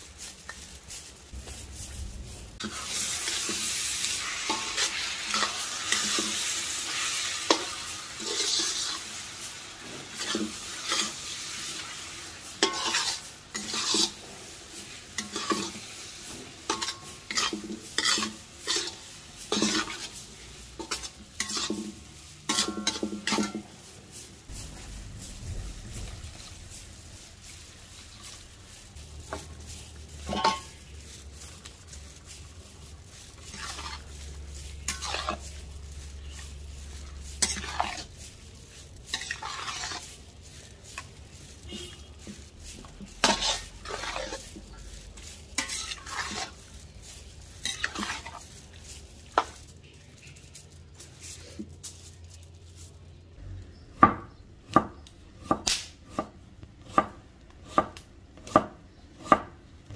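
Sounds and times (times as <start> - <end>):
spoon scraping metal pot: 16.7 - 20.1, 30.3 - 30.8, 39.1 - 40.2, 43.0 - 44.6, 45.6 - 46.6.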